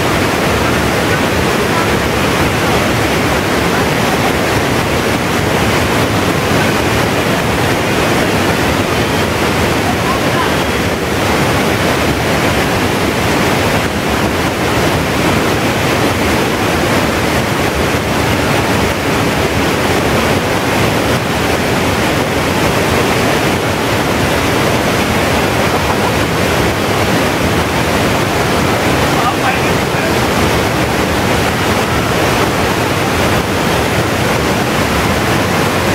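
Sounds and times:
waterfall rushing: 0:00.0 - 0:35.9.

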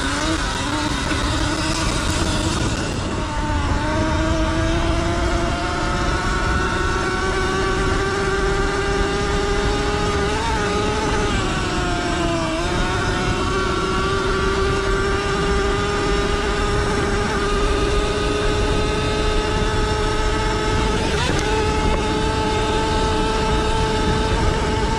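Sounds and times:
electric motor whining: 0:00.0 - 0:24.9
wind and tyres on sand: 0:00.0 - 0:24.9.

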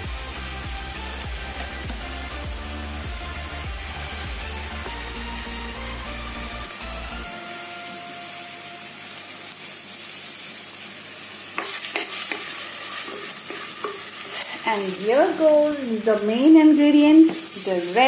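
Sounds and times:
onions sizzling in oil: 0:00.0 - 0:18.0
wooden spatula scraping: 0:11.6 - 0:14.6.

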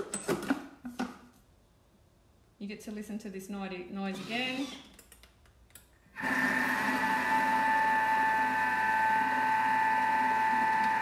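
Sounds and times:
food processor motor whining: 0:06.2 - 0:11.0.

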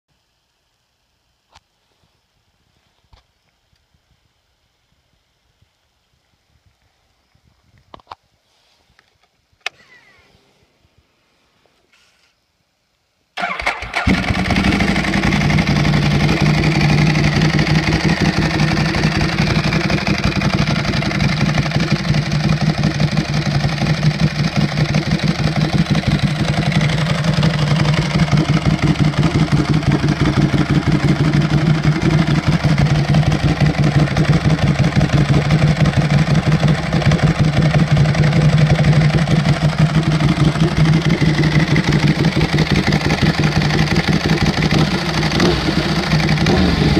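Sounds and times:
motorcycle engine starting and idling: 0:13.4 - 0:46.9.

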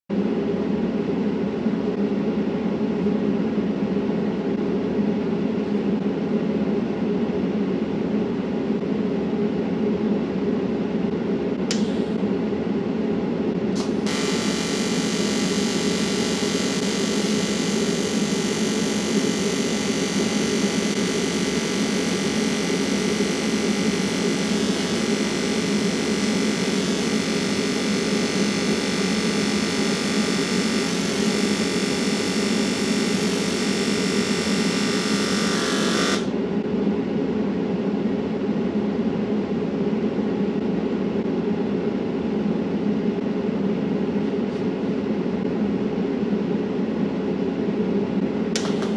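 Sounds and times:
mechanical hum: 0:00.1 - 0:48.9
welding arc hissing: 0:13.8 - 0:36.3.

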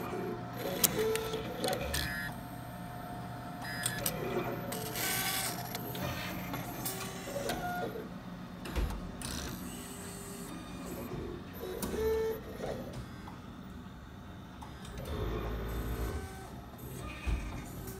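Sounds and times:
steady machine hum: 0:00.0 - 0:17.9
short motor whirs: 0:14.9 - 0:17.9.

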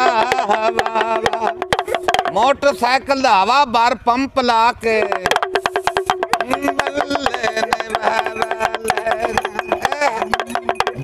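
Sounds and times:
pellet drum rattling: 0:00.0 - 0:03.7, 0:04.6 - 0:11.0.

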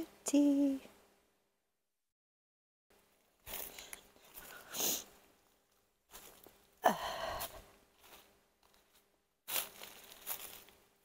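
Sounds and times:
footsteps in dry leaves: 0:06.1 - 0:06.6, 0:07.4 - 0:10.8
woman sighing: 0:06.8 - 0:07.6.

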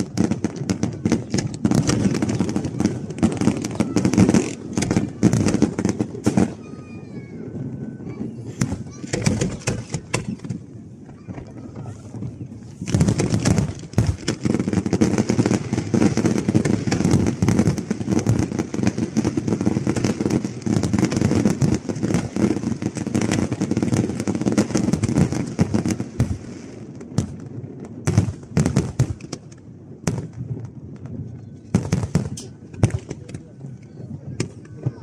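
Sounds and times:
fireworks bangs and crackling: 0:00.0 - 0:35.0.

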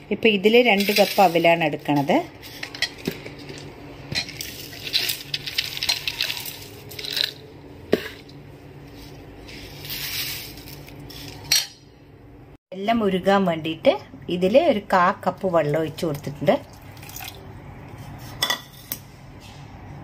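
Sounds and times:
dry rice flakes rustling: 0:04.4 - 0:07.4, 0:08.9 - 0:11.4.

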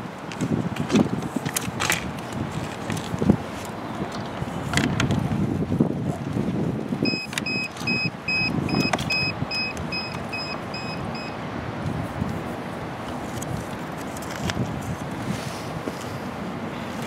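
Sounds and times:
wind rumbling on microphone: 0:00.0 - 0:17.0
drone electronic beeps: 0:07.0 - 0:11.4.

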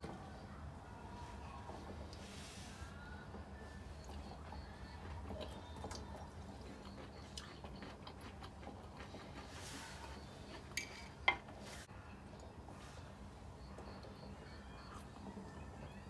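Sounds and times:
faint steady hum: 0:00.0 - 0:16.0
cutlery clinking on plate: 0:10.6 - 0:11.6.

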